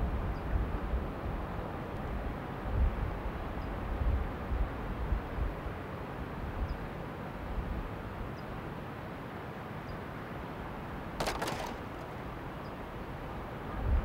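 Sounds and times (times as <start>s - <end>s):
rattling clatter of clicks: 11.2s - 12.1s.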